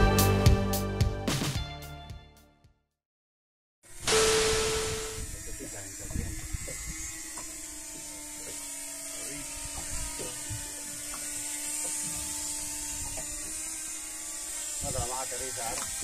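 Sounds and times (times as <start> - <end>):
drone propellers buzzing: 4.0 - 16.0.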